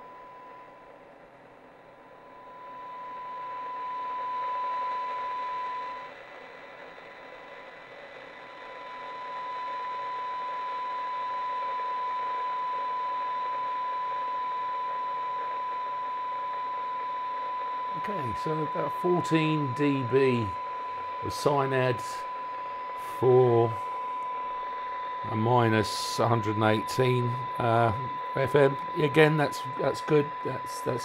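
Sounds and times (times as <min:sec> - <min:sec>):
radio receiver hiss: 0:00.0 - 0:31.0
steady test tone: 0:14.9 - 0:31.0.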